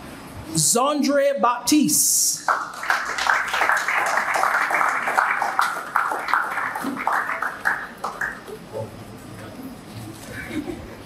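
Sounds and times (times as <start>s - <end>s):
audience applauding: 2.5s - 8.8s.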